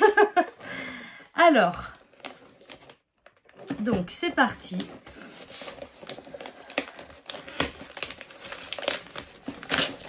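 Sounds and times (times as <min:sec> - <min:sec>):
wrapping paper crinkling: 0:04.7 - 0:10.0.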